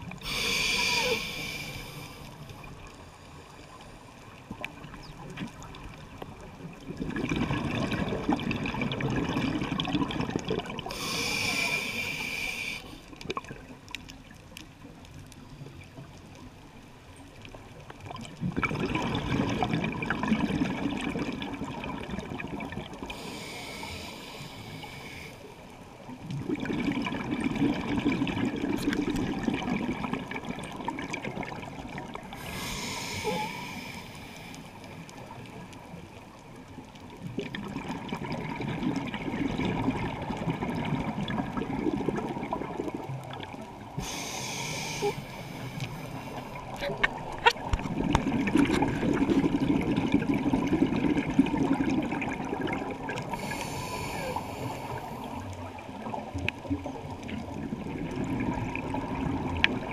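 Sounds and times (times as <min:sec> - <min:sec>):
regulator inhale hiss: 0:00.2 - 0:03.9, 0:10.9 - 0:13.2, 0:23.1 - 0:25.6, 0:32.4 - 0:35.0, 0:44.0 - 0:46.6, 0:53.3 - 0:55.5
gurgling exhaled bubbles: 0:04.6 - 0:11.9, 0:18.1 - 0:23.8, 0:26.2 - 0:33.9, 0:37.2 - 0:59.9.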